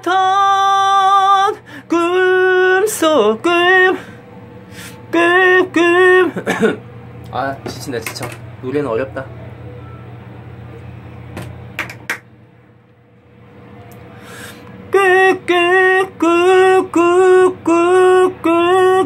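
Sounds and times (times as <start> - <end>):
person singing into microphone: 0.0 - 4.0, 5.1 - 6.4, 14.9 - 19.0.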